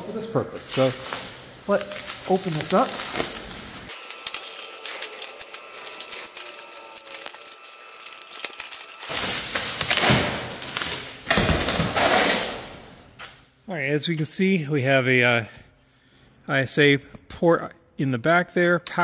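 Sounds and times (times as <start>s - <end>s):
bubble wrap crinkling: 0.7s - 11.2s.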